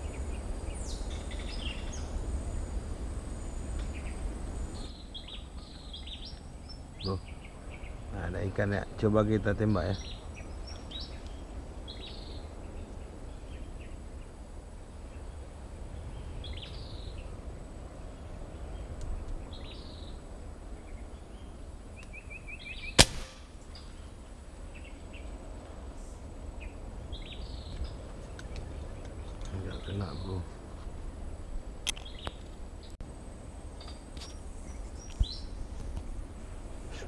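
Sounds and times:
low outdoor background: 0:00.0 - 0:37.0
speargun firing snap: 0:23.0 - 0:23.6.

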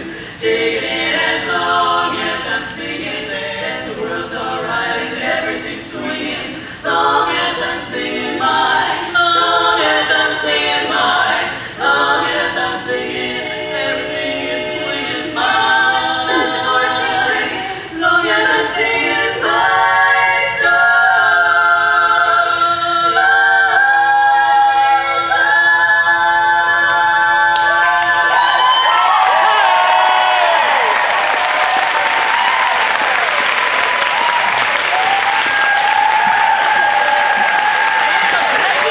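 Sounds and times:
women singing a cappella harmony: 0:00.0 - 0:29.4.

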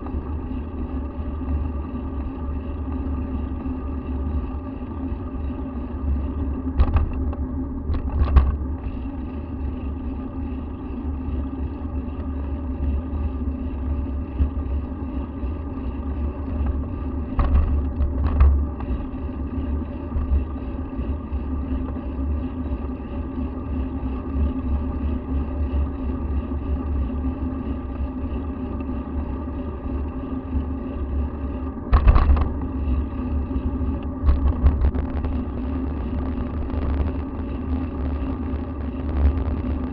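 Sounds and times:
faint drone: 0:00.0 - 0:39.9.

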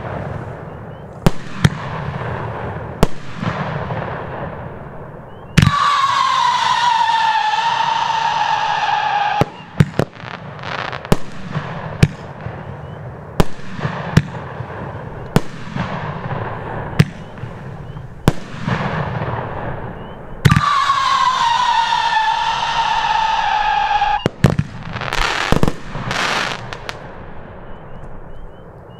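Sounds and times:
firework bangs: 0:00.0 - 0:28.4
firework whistle with falling pitch: 0:05.3 - 0:11.1, 0:19.8 - 0:26.9
hissing crackle: 0:05.6 - 0:28.9.

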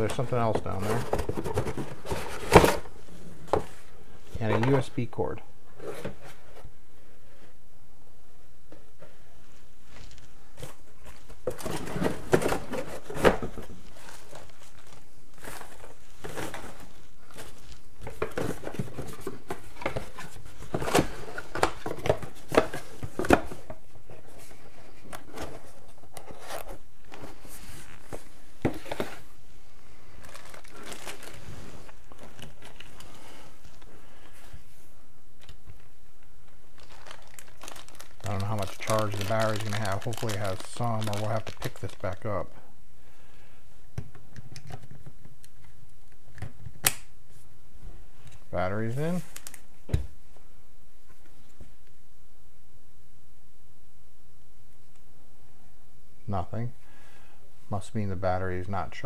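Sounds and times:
plastic bags crinkling: 0:30.1 - 0:33.8, 0:36.7 - 0:42.4.

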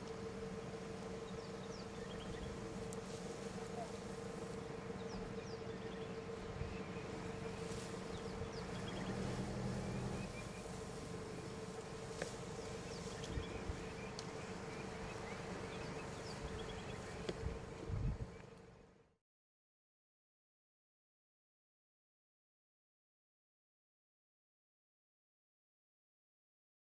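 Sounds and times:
insect buzzing: 0:00.0 - 0:18.9.

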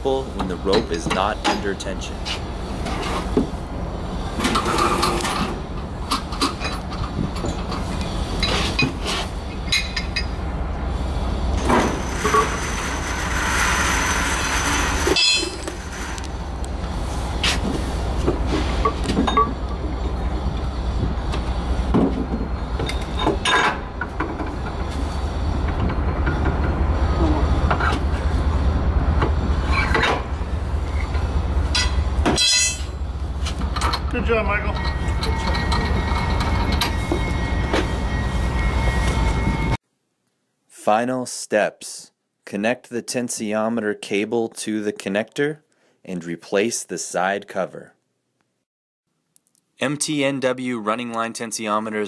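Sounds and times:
low machinery hum: 0:00.0 - 0:39.8.

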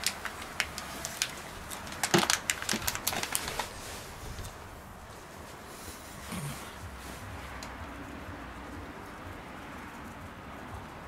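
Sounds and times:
plastic bag crinkling: 0:00.0 - 0:04.6.

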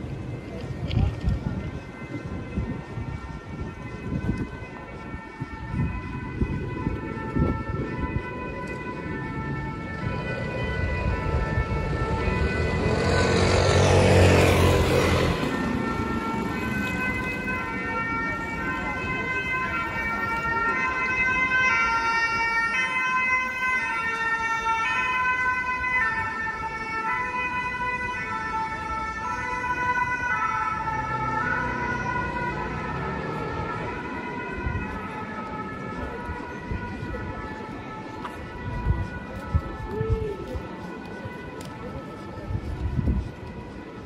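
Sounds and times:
street traffic noise: 0:00.0 - 0:44.0
two-tone siren: 0:00.0 - 0:44.0.

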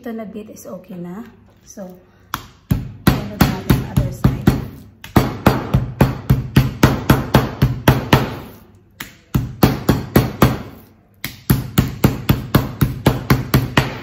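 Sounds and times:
meat mallet pounding chicken: 0:02.3 - 0:14.0.

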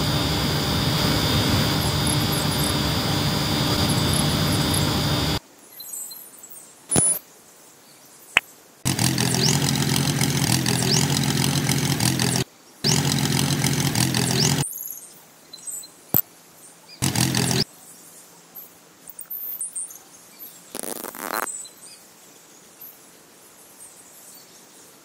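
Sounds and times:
small motor running: 0:00.0 - 0:05.4, 0:08.9 - 0:14.6, 0:17.0 - 0:17.7, 0:20.8 - 0:21.5
sharp click: 0:06.9 - 0:07.2.

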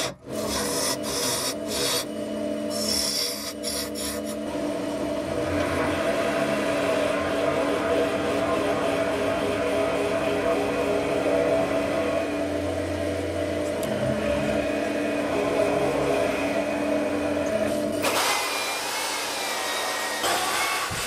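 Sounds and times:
power drill sanding disc whine: 0:00.0 - 0:02.1, 0:02.7 - 0:04.4
turning tool cutting wood: 0:00.0 - 0:06.0
wood lathe humming: 0:00.0 - 0:21.0.

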